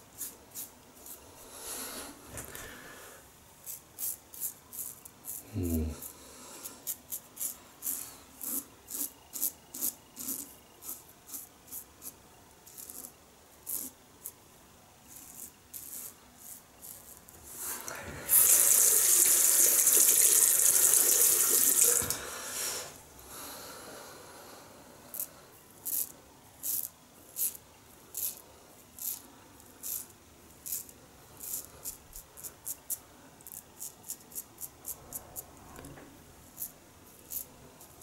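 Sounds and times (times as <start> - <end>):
razor scraping stubble: 3.6 - 5.4, 6.8 - 14.0.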